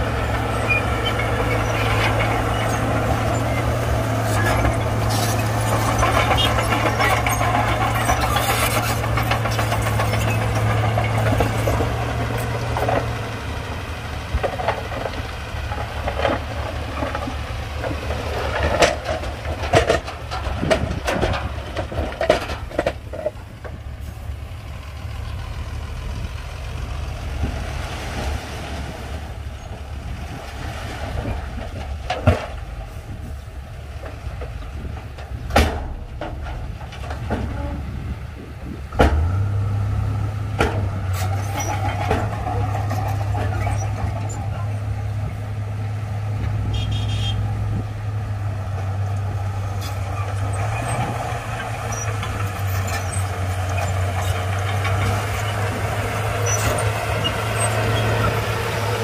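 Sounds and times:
heavy diesel engine droning: 0.0 - 59.0
metallic clanks and knocks: 0.3 - 13.3, 14.3 - 23.8, 34.0 - 38.0.

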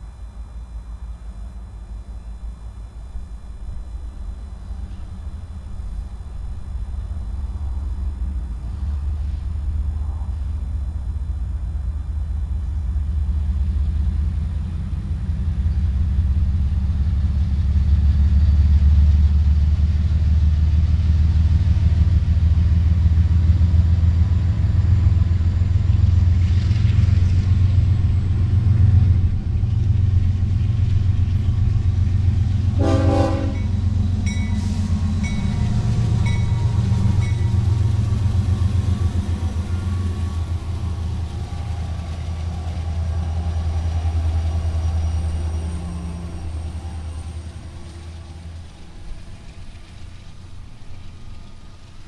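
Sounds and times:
freight train low rumble: 0.0 - 52.0
locomotive horn blast: 32.6 - 37.8.

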